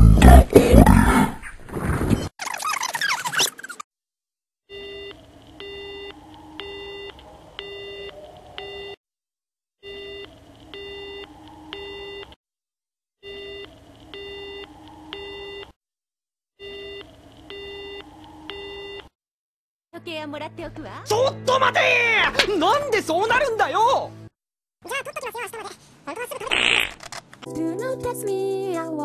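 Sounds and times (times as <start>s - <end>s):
telephone busy tone: 4.7s - 9.0s, 9.8s - 12.4s, 13.2s - 15.7s.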